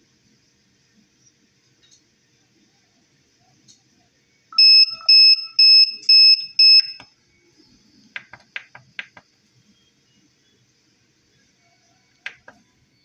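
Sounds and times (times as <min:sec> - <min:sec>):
electronic buzzer beeping: 0:04.6 - 0:07.0.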